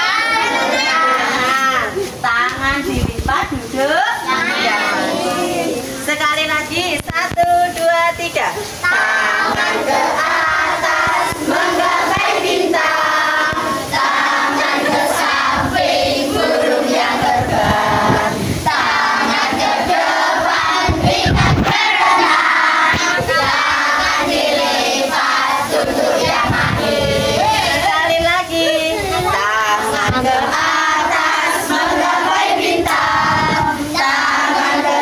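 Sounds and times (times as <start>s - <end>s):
young children singing: 0.0s - 2.1s, 4.2s - 6.1s, 8.7s - 35.0s.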